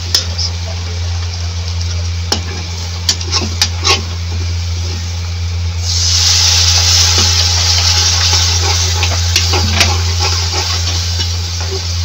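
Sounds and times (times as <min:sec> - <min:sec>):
faint sizzle: 0:00.0 - 0:12.0
loud hiss: 0:05.7 - 0:12.0.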